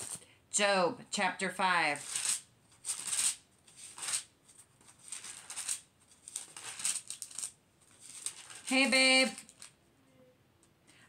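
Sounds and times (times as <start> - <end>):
book pages rustling: 0.0 - 0.2, 1.9 - 9.8.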